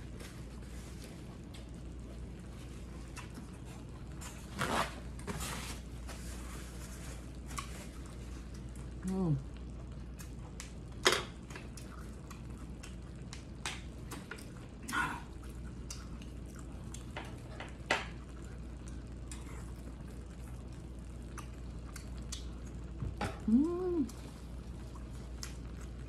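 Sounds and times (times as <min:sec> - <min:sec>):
wet swallowing and mouth noises: 0:07.3 - 0:26.0.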